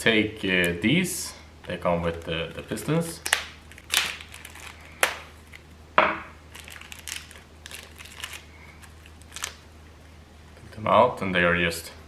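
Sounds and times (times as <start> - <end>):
wrapper packet crinkling: 2.0 - 5.7, 6.5 - 9.7.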